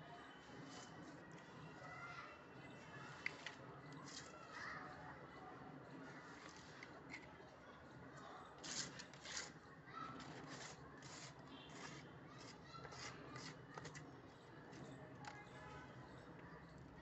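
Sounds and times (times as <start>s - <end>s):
soil scraping on concrete: 8.6s - 14.0s.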